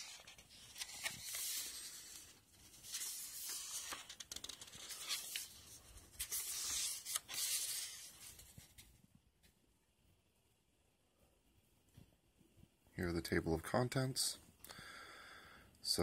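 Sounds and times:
book pages turning: 0:00.0 - 0:08.9.

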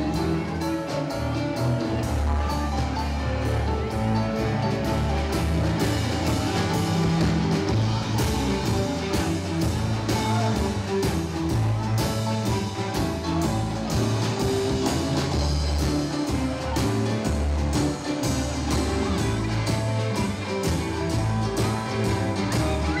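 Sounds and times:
drum kit beat: 0:00.0 - 0:23.0
electric guitar: 0:00.0 - 0:23.0
keyboard: 0:00.0 - 0:23.0.

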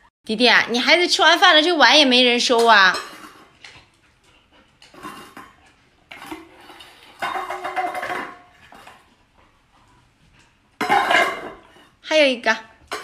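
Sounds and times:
metal bowls clattering on tile: 0:02.4 - 0:09.3, 0:10.4 - 0:12.0, 0:12.8 - 0:13.0.

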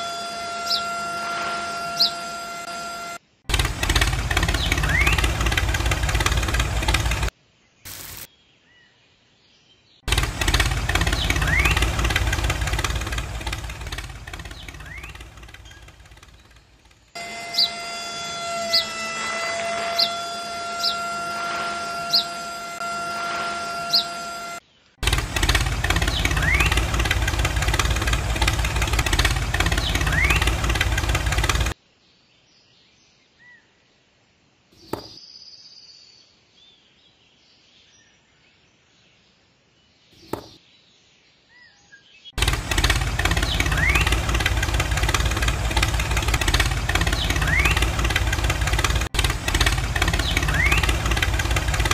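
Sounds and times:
tractor engine running: 0:00.0 - 0:07.3, 0:07.9 - 0:08.3, 0:10.1 - 0:31.8, 0:42.4 - 0:51.9
birds chirping: 0:01.8 - 0:03.2, 0:03.9 - 0:31.7, 0:39.9 - 0:51.9.

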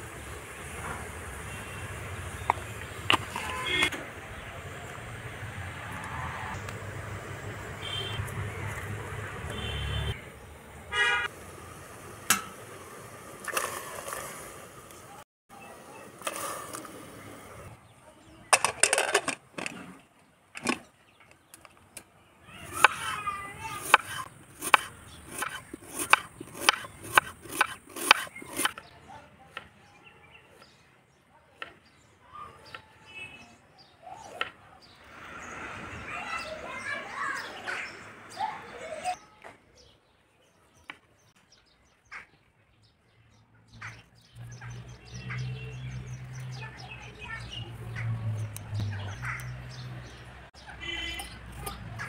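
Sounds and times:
birds chirping: 0:00.1 - 0:06.0, 0:07.4 - 0:11.3, 0:20.2 - 0:52.0
knife striking chopping board: 0:23.9 - 0:28.8.

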